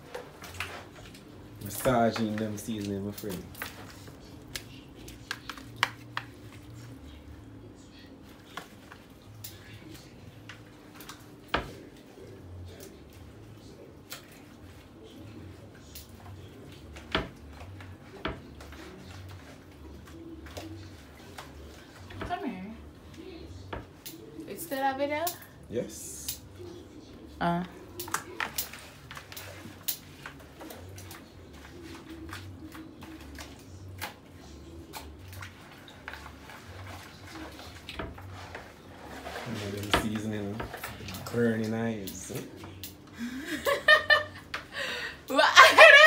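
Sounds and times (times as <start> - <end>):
wet squelching of hands massaging meat: 28.1 - 39.9.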